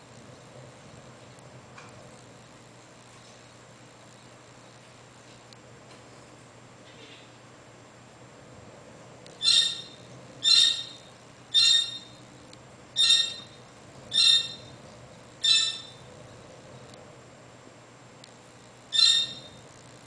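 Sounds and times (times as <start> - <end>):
parrot squawking: 9.4 - 12.2, 13.0 - 14.8, 15.4 - 16.1, 18.9 - 19.6.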